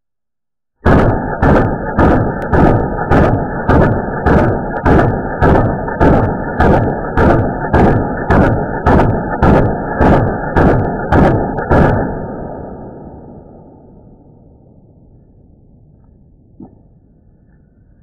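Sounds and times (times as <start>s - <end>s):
slowed rifle shots as deep thuds: 0.8s - 14.4s.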